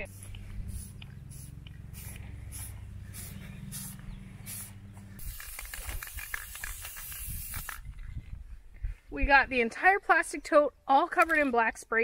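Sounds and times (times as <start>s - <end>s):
aerosol spray can hissing: 0.0s - 7.8s
wind rumble on microphone: 7.1s - 9.7s.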